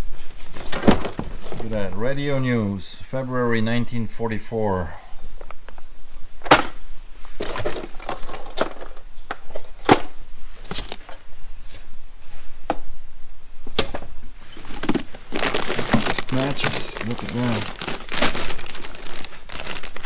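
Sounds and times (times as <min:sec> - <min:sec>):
objects knocking and clattering: 0:07.4 - 0:10.1
paper and cardboard rustling: 0:14.4 - 0:20.0.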